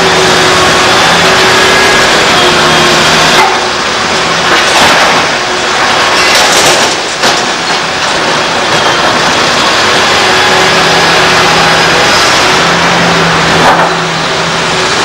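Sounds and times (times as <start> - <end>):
excavator running: 0.0 - 15.0
rumbling clatter of falling debris: 3.4 - 9.5.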